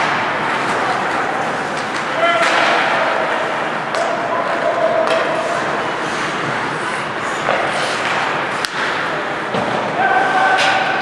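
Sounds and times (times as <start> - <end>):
crowd noise: 0.0 - 11.0
skates on ice: 0.0 - 11.0
stick hitting puck: 1.7 - 3.0, 5.0 - 5.3, 7.4 - 9.8
voices shouting: 10.0 - 11.0.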